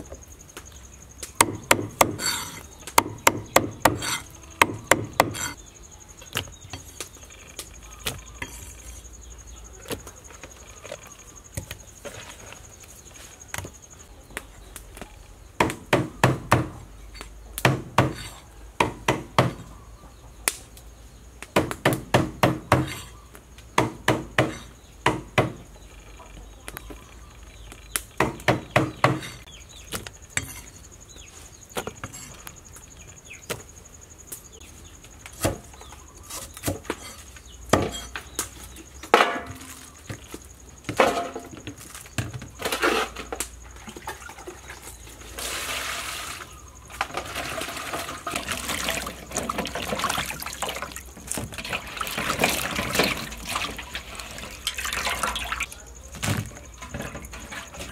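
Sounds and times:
cleaver chopping on wooden block: 1.4s - 5.6s.

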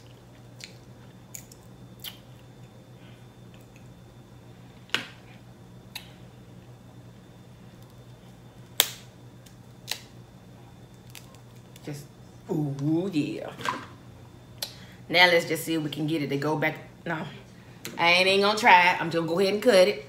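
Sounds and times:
faint steady hum: 0.0s - 20.0s
crab shell cracking: 0.6s - 2.5s, 8.6s - 10.2s, 10.8s - 11.8s.

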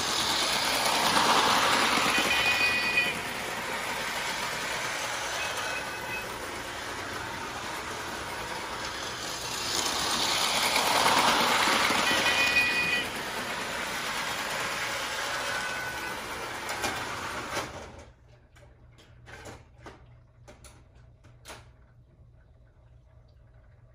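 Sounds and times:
toy train whirring rattle: 0.0s - 17.8s.

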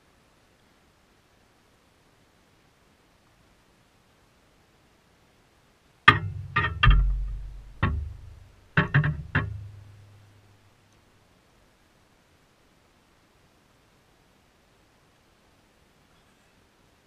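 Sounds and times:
low plucked string notes: 6.1s - 10.5s.

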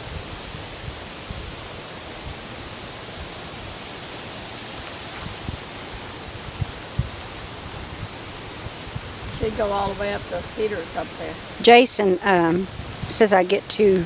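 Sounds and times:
outdoor background hiss: 0.0s - 14.0s.

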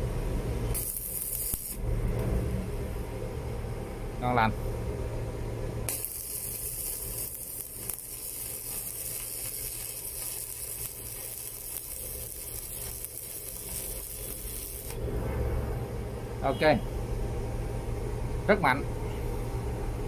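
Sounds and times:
welding arc sizzling: 0.0s - 2.7s, 5.9s - 15.9s.

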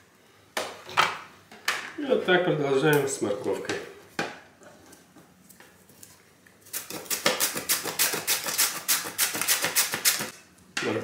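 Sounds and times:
carrot grating strokes: 6.7s - 10.3s.

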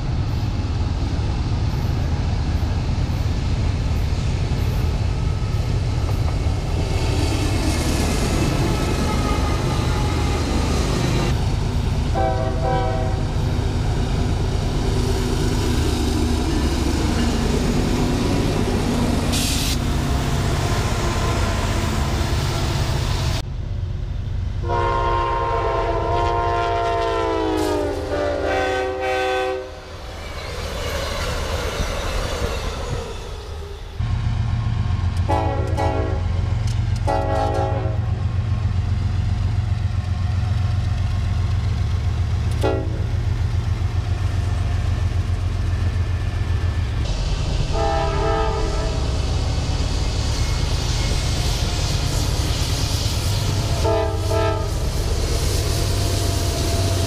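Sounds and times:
freight train rolling past: 0.0s - 57.0s
low train rumble: 0.0s - 57.0s
locomotive chime horn: 12.1s - 13.3s, 24.6s - 29.8s, 35.3s - 36.3s, 37.0s - 38.2s, 47.7s - 49.0s, 53.8s - 54.8s.

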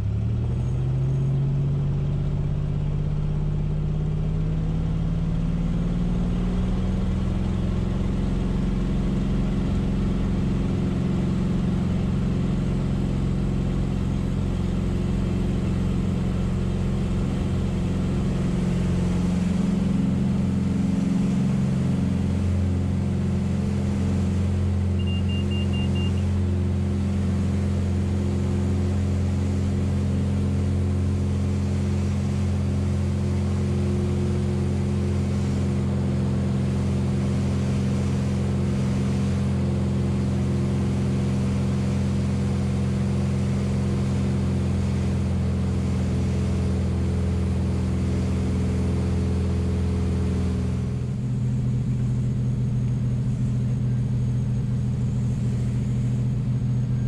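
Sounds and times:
aircraft engine and propeller drone: 0.0s - 57.0s
high beeps: 25.0s - 26.2s.

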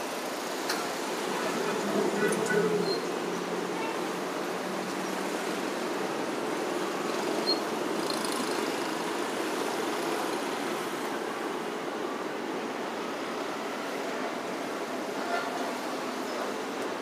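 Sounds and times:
road traffic passing: 0.0s - 17.0s.

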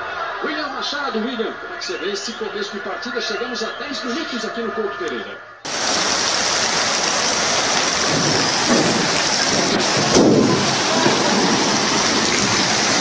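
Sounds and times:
heavy rain downpour: 5.7s - 13.0s.

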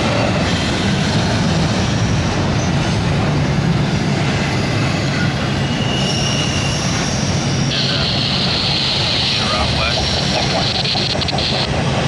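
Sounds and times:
freight train wheels rumbling: 0.0s - 12.0s
wheel squeal: 5.1s - 8.1s.

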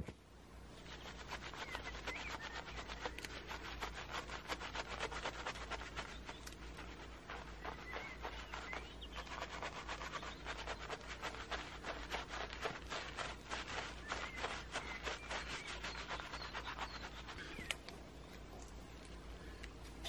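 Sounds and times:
brush scrubbing on asphalt: 0.8s - 17.8s.

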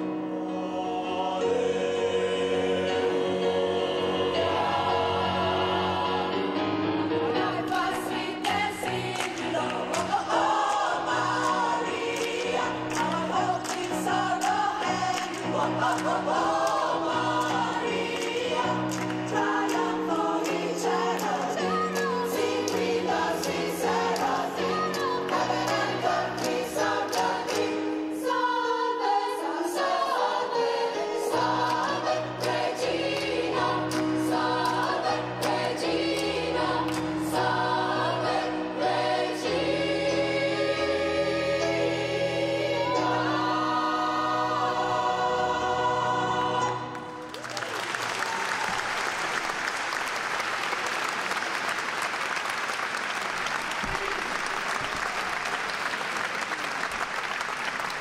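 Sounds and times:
gospel choir singing with instruments: 0.0s - 47.5s
audience applause: 8.5s - 21.7s, 47.0s - 58.0s.

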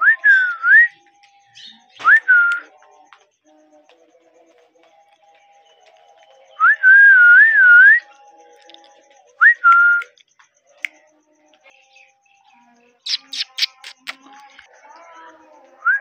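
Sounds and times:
parakeet whistling: 13.0s - 14.2s.

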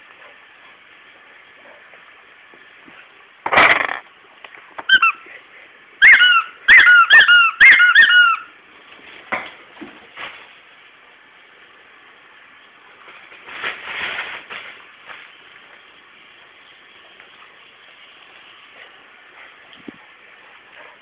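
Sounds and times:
dog toy squeaking: 4.8s - 5.2s, 6.0s - 8.5s.

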